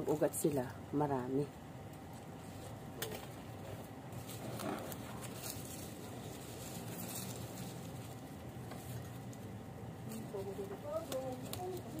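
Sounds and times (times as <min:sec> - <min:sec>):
leaves rustling being handled: 0:00.0 - 0:12.0.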